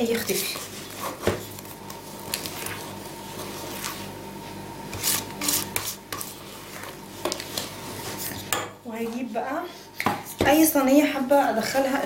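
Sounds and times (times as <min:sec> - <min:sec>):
whisk stirring thick batter: 0:00.0 - 0:04.1, 0:04.8 - 0:08.5
whisk scraping metal bowl: 0:04.9 - 0:08.5.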